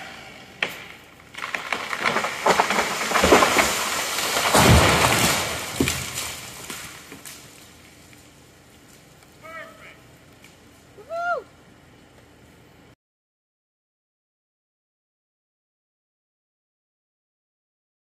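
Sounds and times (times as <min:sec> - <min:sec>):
tree trunk crashing to ground: 0:00.6 - 0:07.7
branches cracking and snapping: 0:00.6 - 0:09.4.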